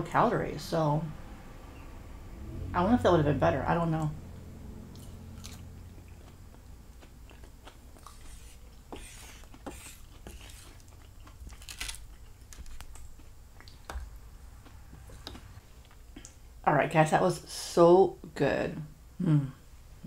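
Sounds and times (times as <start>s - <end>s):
person chewing food: 4.9s - 16.4s.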